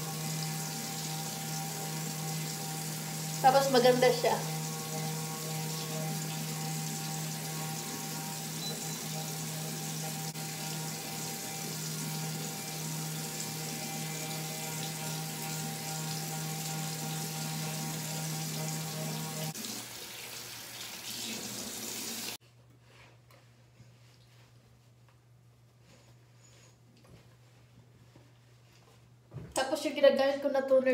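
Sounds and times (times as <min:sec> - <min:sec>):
electric facial brush humming: 0:00.0 - 0:22.4.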